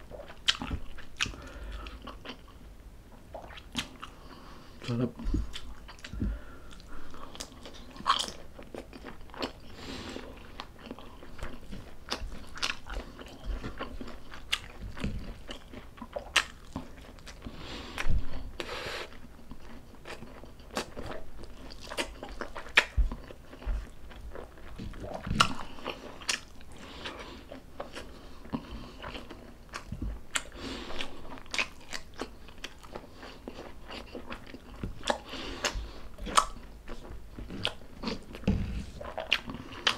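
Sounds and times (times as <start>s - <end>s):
person chewing crunchy food: 0.0s - 2.7s, 3.3s - 39.9s.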